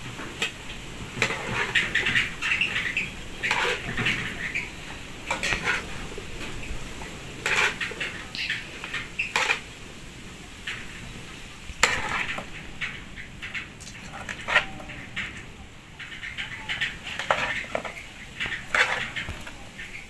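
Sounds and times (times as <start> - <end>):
metal cookware clinking and scraping: 1.2 - 6.6, 7.4 - 9.8, 11.8 - 15.4, 16.0 - 20.0.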